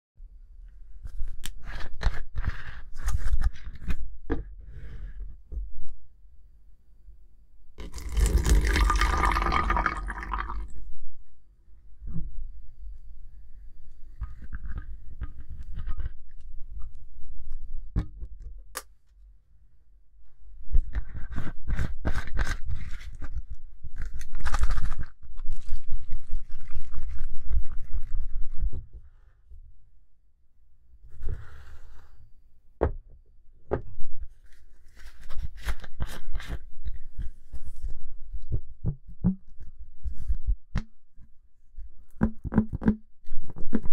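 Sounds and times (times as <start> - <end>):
plastic bottle crackling: 7.8 - 10.7
plastic crackling and scraping: 20.8 - 28.9.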